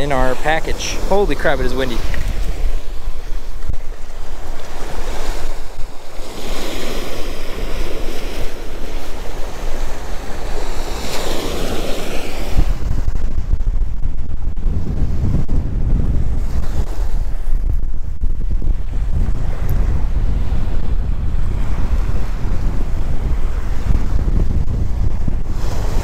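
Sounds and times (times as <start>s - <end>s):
surf washing onto beach: 0.0s - 13.5s, 18.8s - 26.0s
wind buffeting microphone: 0.0s - 26.0s.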